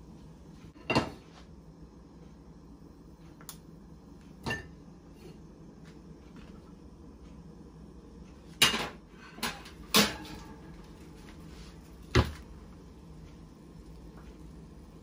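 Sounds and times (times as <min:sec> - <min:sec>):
kitchenware clattering: 0:00.8 - 0:01.2, 0:08.6 - 0:10.6
kitchenware ringing: 0:04.4 - 0:04.8.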